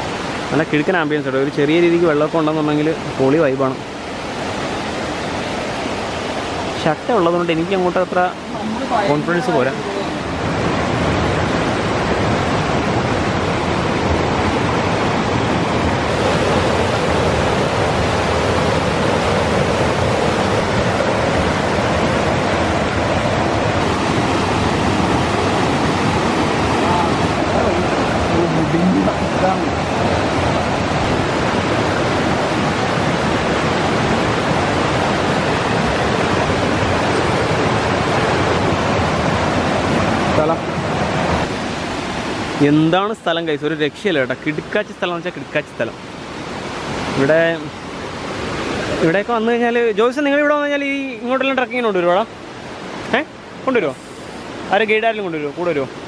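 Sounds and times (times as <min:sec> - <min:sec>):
river water rushing: 0:00.0 - 0:56.0.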